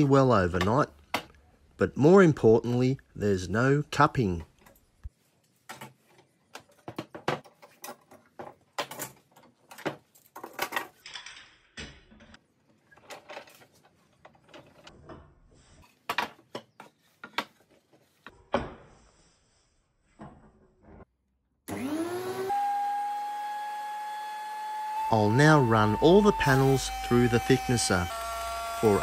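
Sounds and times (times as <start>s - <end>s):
metal clamps clicking and clattering: 6.6s - 15.0s.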